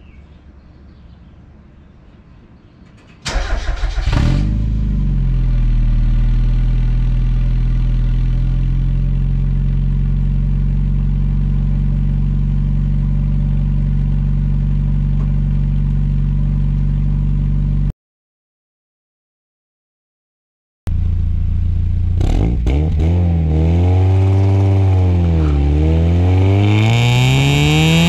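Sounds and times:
car engine revving and idling: 3.3s - 17.9s, 20.9s - 28.0s.

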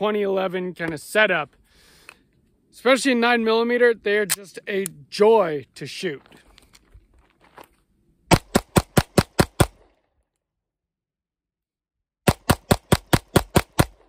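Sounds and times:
pistol shots: 8.3s - 9.9s, 12.2s - 14.0s.

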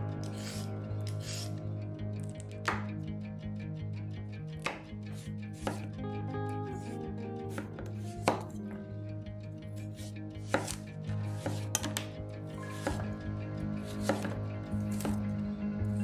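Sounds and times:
knife chopping on wooden board: 4.6s - 4.9s, 5.6s - 5.9s, 7.5s - 8.6s, 10.0s - 12.1s, 12.7s - 13.1s, 13.9s - 15.2s.

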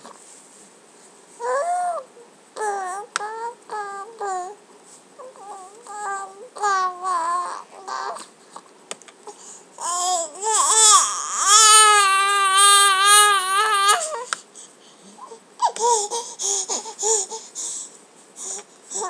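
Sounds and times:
baby squealing and crying: 9.8s - 14.3s.

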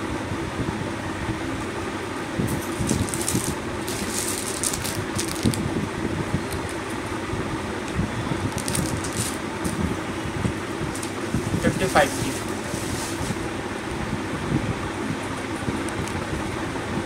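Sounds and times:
fan hum: 0.0s - 17.0s
plastic packets rustling: 2.5s - 5.7s, 6.4s - 7.0s, 8.5s - 9.8s.

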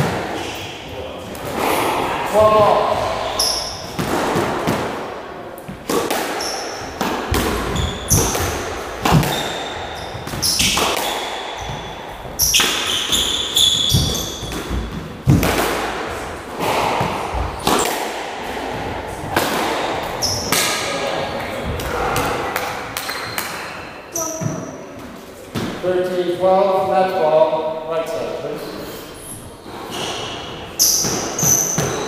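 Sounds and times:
squash ball cracking off rackets: 2.6s - 21.0s
shoes squeaking on wooden floor: 5.7s - 15.4s, 20.0s - 21.8s, 28.6s - 32.0s.

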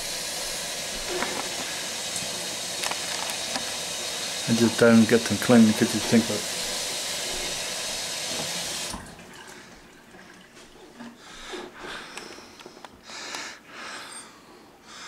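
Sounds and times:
faucet running: 0.0s - 10.8s.

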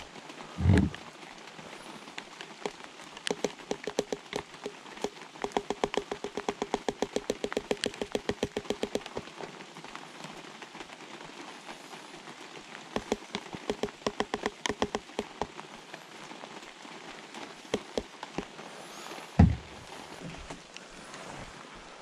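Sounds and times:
dull thump: 19.4s - 19.8s.

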